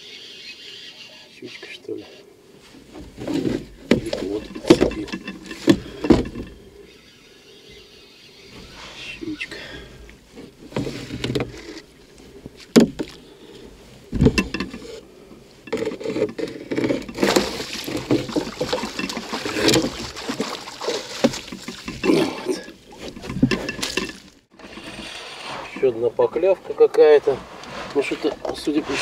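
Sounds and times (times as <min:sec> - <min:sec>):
knocks against boat: 0:03.0 - 0:06.5, 0:12.7 - 0:13.2, 0:14.1 - 0:14.8
fish thrashing and splashing: 0:16.8 - 0:24.6
water pouring off net: 0:17.2 - 0:22.0.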